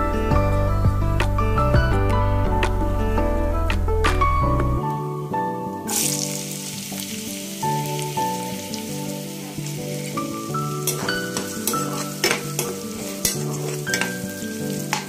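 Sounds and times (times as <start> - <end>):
onions sizzling in hot oil: 5.9 - 15.0
spatula scraping a pan: 10.8 - 15.0.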